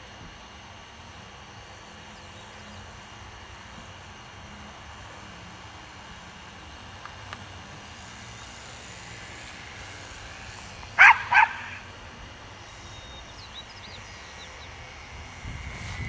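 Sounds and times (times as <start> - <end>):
model airplane engine buzzing: 0.0 - 16.0
dog barking: 11.0 - 11.8.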